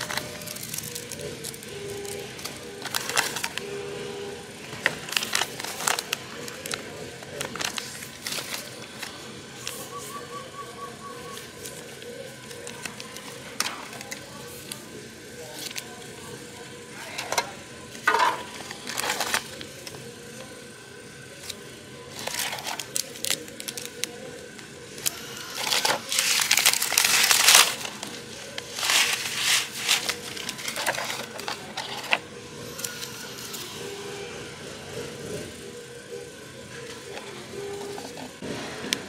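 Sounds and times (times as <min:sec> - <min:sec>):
foil pouches crinkling: 0:00.0 - 0:03.6, 0:04.8 - 0:09.8, 0:18.1 - 0:19.8, 0:22.1 - 0:24.2, 0:25.0 - 0:32.2
plastic tray clattering: 0:18.1 - 0:19.4.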